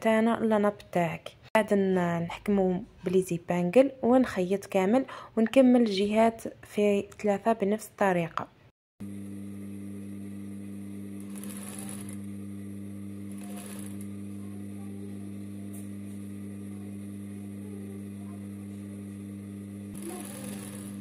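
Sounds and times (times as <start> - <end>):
sewing machine humming: 9.0 - 21.0.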